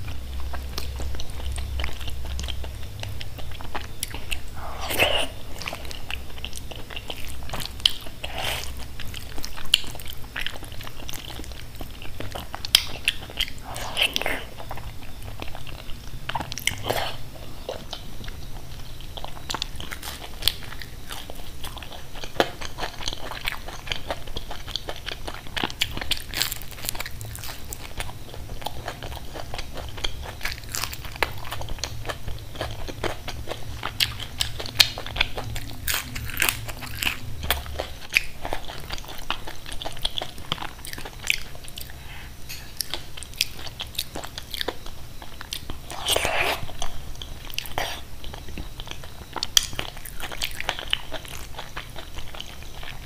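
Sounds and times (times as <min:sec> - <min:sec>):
person chewing crunchy food: 0:00.0 - 0:53.0
mouth sounds: 0:04.5 - 0:05.9.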